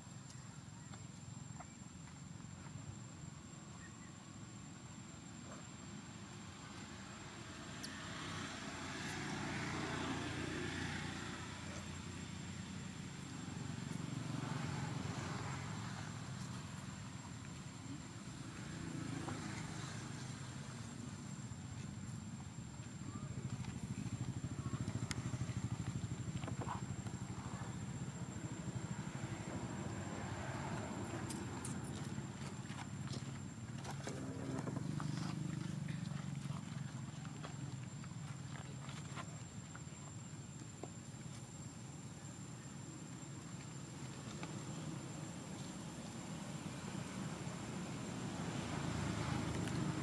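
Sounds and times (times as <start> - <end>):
low outdoor rumble: 20.0 - 50.0.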